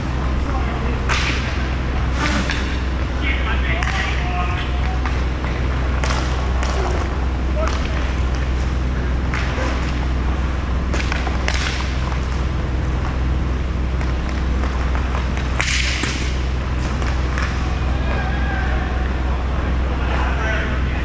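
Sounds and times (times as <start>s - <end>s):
steady low hum: 0.0s - 21.0s
hockey sticks striking puck: 0.5s - 10.1s, 10.9s - 13.1s, 13.9s - 18.8s.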